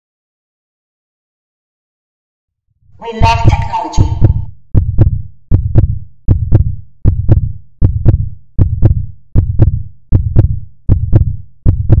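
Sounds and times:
heartbeat thumps: 0:03.2 - 0:12.0.

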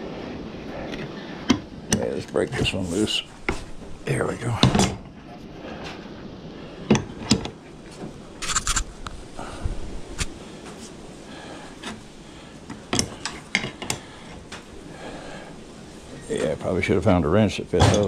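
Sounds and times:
wrench scraping on metal: 0:08.4 - 0:08.9.

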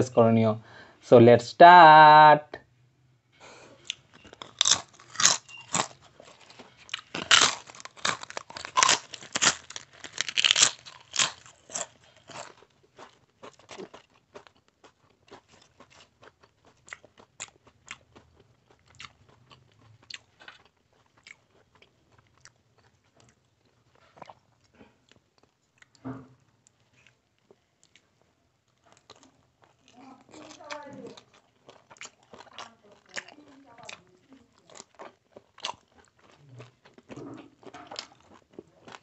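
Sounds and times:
chewing clicks and smacks: 0:03.8 - 0:26.0, 0:26.7 - 0:39.0
loud crunching bites: 0:03.9 - 0:18.0.

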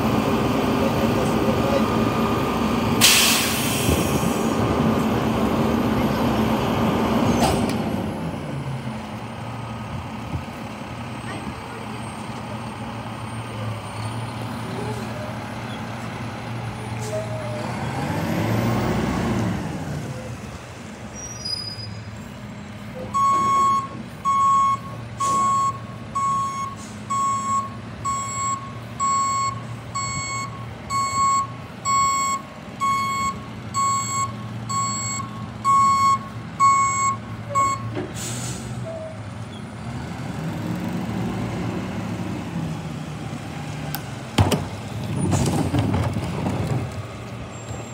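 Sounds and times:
diesel engine idling and revving: 0:00.0 - 0:47.9
hiss of air: 0:03.0 - 0:04.4
reversing alarm beeping: 0:23.1 - 0:37.9.

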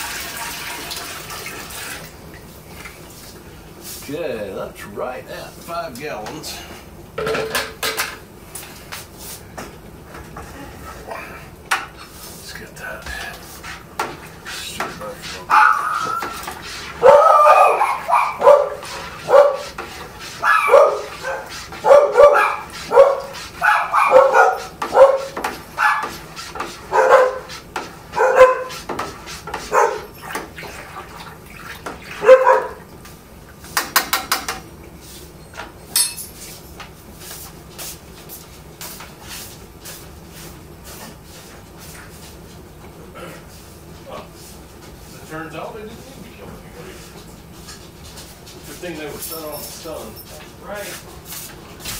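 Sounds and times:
dog barking: 0:15.5 - 0:16.4, 0:17.0 - 0:19.7, 0:20.4 - 0:26.1, 0:26.9 - 0:27.5, 0:28.1 - 0:28.8, 0:29.6 - 0:30.2, 0:32.2 - 0:32.8.

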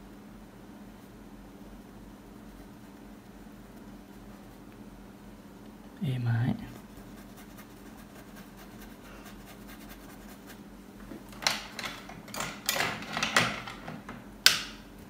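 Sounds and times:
faint room hum: 0:00.0 - 0:15.0
paintbrush scratching and rubbing: 0:01.8 - 0:04.7, 0:06.6 - 0:10.7.

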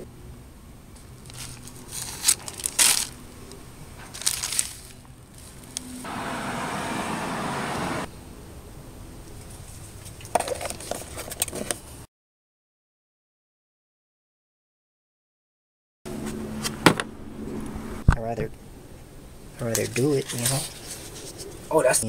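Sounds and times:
plastic bag crinkling: 0:01.3 - 0:03.2, 0:04.1 - 0:05.8.

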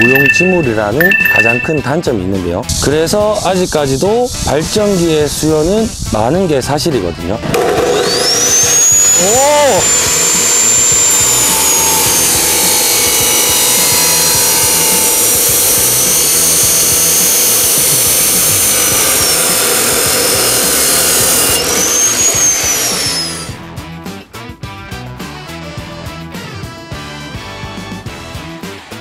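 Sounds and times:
high motor whine: 0:00.0 - 0:01.9, 0:07.5 - 0:23.6
chop saw grinding metal: 0:07.5 - 0:23.6.

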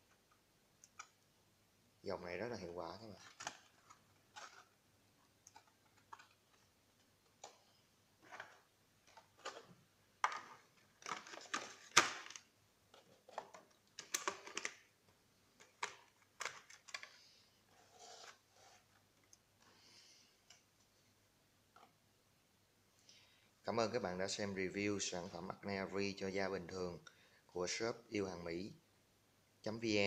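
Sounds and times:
plastic tray and box handling: 0:03.2 - 0:04.8, 0:08.2 - 0:14.8.

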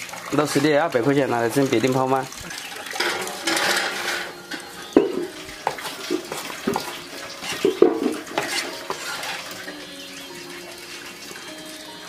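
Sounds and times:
objects clinking in water: 0:00.0 - 0:10.7
water splashing: 0:00.0 - 0:12.0.

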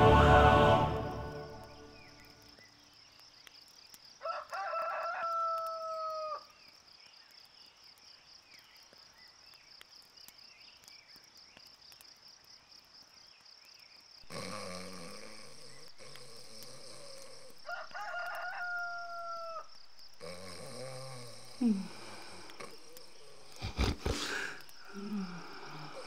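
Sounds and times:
crickets chirring: 0:00.0 - 0:26.0
rooster crowing: 0:04.2 - 0:06.5, 0:17.6 - 0:19.8.

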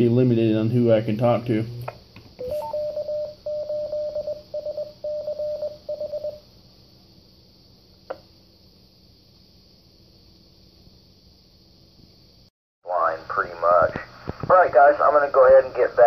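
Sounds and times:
radio repeater beep tones: 0:02.4 - 0:04.3.

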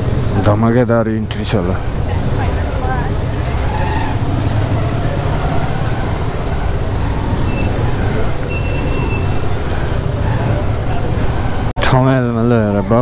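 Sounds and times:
street noise: 0:00.0 - 0:13.0
motorcycle engine rumbling: 0:01.8 - 0:11.7.

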